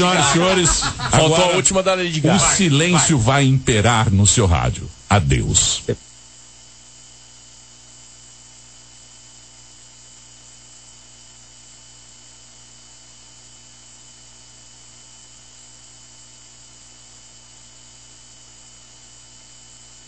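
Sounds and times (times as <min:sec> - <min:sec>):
radio static hiss: 0:00.0 - 0:06.4
faint hum: 0:00.0 - 0:20.0.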